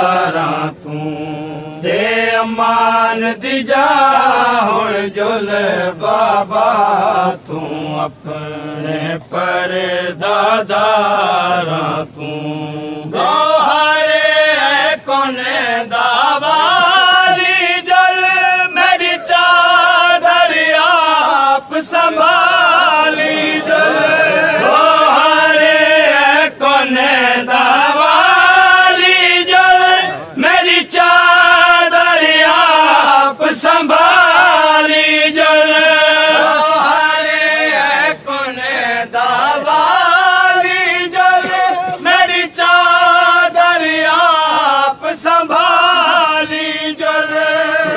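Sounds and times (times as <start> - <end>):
voices chanting a lament: 0.0 - 47.9.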